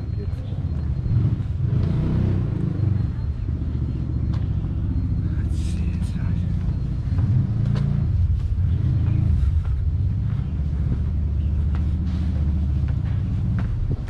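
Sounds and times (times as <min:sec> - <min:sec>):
loud low rumble: 0:00.7 - 0:14.0
footsteps on stone stairs: 0:06.6 - 0:14.0.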